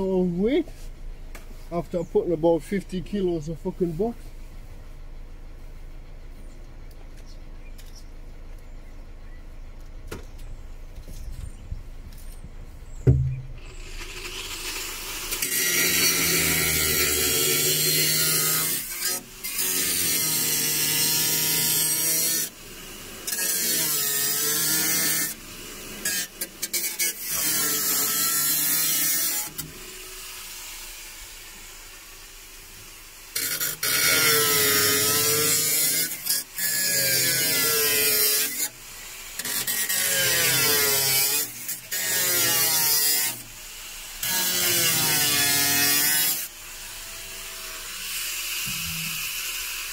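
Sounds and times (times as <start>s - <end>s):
angle grinder cutting metal: 13.1s - 49.9s.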